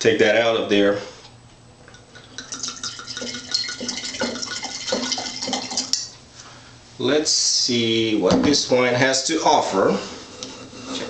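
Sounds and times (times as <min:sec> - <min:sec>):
wine pouring into a glass: 0:02.1 - 0:06.1.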